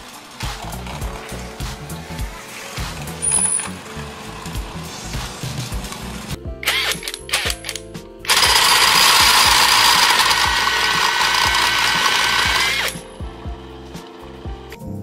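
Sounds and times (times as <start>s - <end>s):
background music with steady beat: 0.0s - 15.0s
impact driver spinning: 5.3s - 13.1s.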